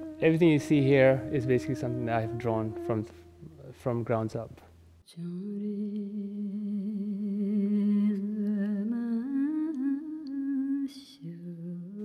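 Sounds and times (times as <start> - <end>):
person humming long notes: 0.0 - 4.0.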